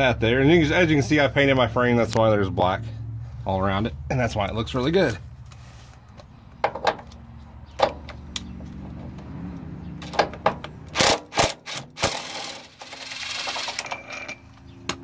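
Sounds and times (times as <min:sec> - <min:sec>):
metal knocks and clanks: 0:06.6 - 0:09.2, 0:10.0 - 0:10.9.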